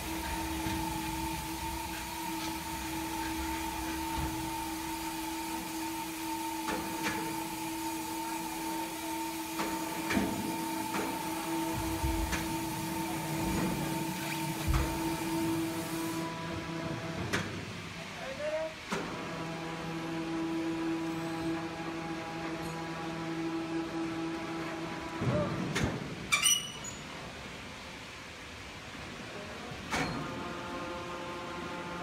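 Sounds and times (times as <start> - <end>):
electric hoist whining: 0.0 - 18.0.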